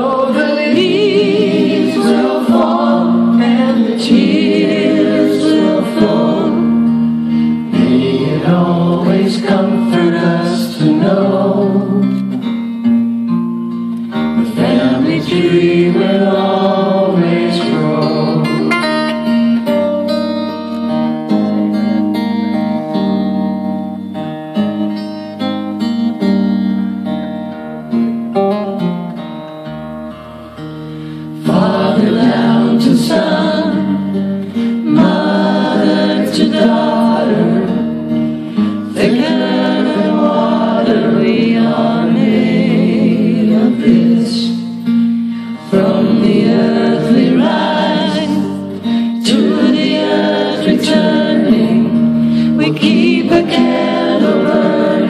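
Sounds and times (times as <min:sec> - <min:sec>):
singers in close harmony: 0:00.0 - 0:12.3, 0:14.3 - 0:19.3, 0:31.4 - 0:55.0
guitar: 0:00.0 - 0:55.0.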